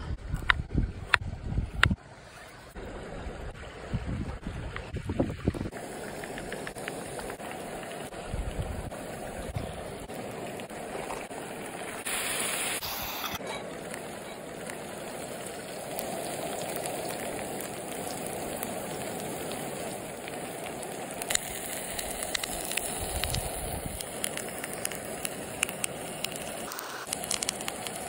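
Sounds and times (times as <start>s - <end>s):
sauce sizzling and bubbling in skillet: 5.7s - 28.0s.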